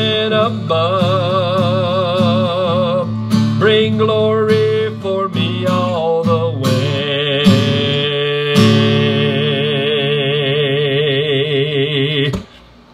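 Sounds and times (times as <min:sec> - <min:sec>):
man singing with vibrato: 0:00.0 - 0:12.6
acoustic guitar strumming: 0:00.0 - 0:12.7.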